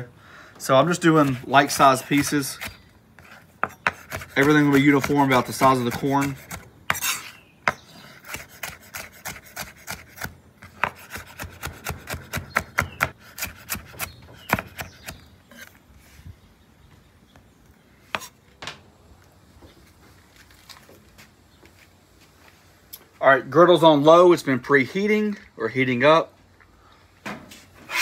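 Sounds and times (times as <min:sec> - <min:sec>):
knife chopping on wooden board: 0:03.6 - 0:15.2.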